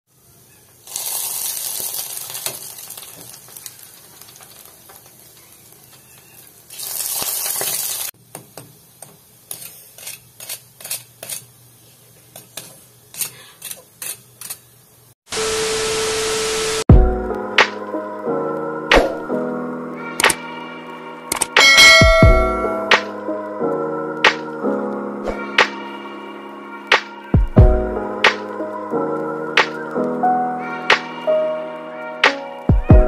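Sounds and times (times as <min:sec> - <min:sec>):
loud steady tone with hiss: 0:00.1 - 0:09.5, 0:14.9 - 0:16.9
fried meat sizzling: 0:00.2 - 0:15.2
crackles and taps of tongs: 0:02.2 - 0:06.6, 0:07.6 - 0:11.5.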